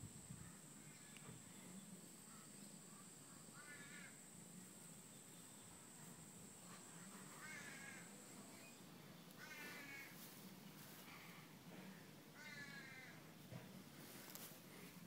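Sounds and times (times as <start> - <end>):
faint high-pitched whine: 0.0 - 15.0
faint animal calls: 0.4 - 4.3, 6.6 - 13.3.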